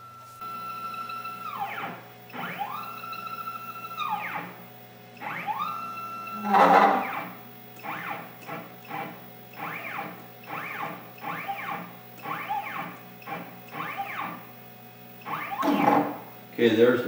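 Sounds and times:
stepper motors whining: 0:00.0 - 0:14.5, 0:15.1 - 0:16.4.

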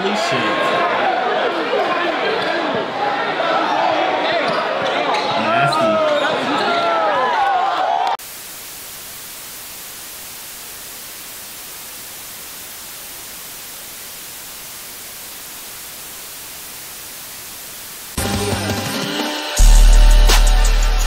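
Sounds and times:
tv static hiss: 0:08.2 - 0:19.6.

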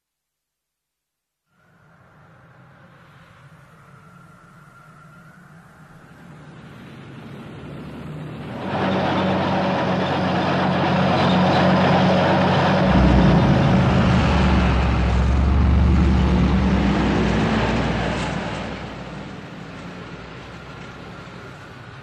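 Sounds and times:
military vehicle engines humming: 0:02.6 - 0:22.0
heavy low rumble: 0:08.4 - 0:19.3.

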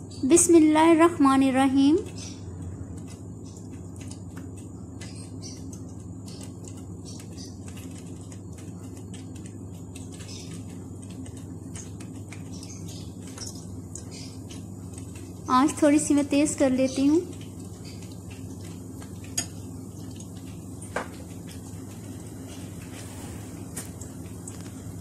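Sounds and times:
steady low hum: 0:00.0 - 0:25.0
batter frying in hot oil: 0:09.0 - 0:25.0.

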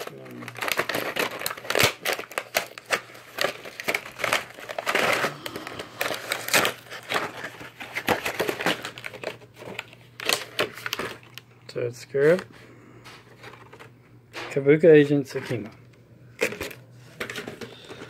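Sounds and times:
plastic packaging crinkling: 0:00.0 - 0:11.5, 0:16.4 - 0:18.0.

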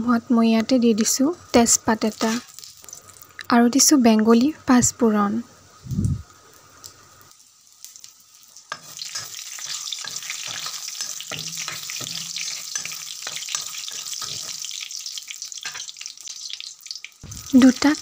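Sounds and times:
seeds sizzling in hot oil: 0:00.5 - 0:04.6, 0:05.5 - 0:18.0
metal spoon stirring: 0:08.7 - 0:14.7.

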